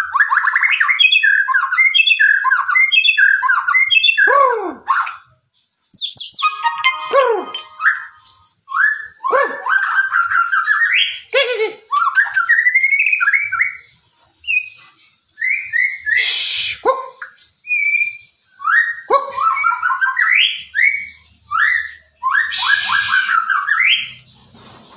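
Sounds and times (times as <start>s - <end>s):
bird whistled song phrases: 0.0s - 5.2s, 6.0s - 11.3s, 11.9s - 13.8s, 15.4s - 24.2s
bird harsh rasping calls: 6.0s - 8.4s, 22.4s - 24.2s.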